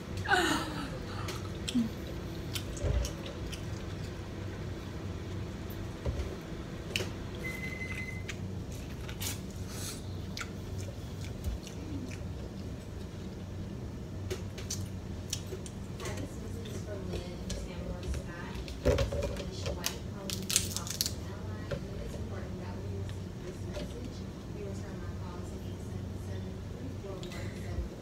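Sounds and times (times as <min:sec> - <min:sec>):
steady low hum: 0:00.0 - 0:28.0
person chewing food: 0:01.2 - 0:04.2, 0:08.7 - 0:13.8, 0:14.5 - 0:15.8.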